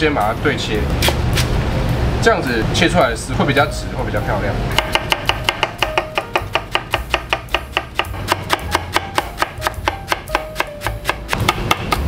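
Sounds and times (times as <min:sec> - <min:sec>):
knife chopping cabbage on board: 0:01.0 - 0:01.5, 0:04.8 - 0:12.0.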